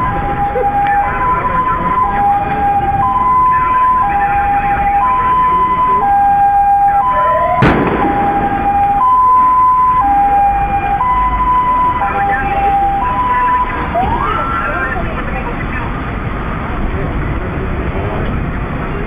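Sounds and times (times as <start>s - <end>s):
two-tone ambulance siren: 0.0s - 15.2s.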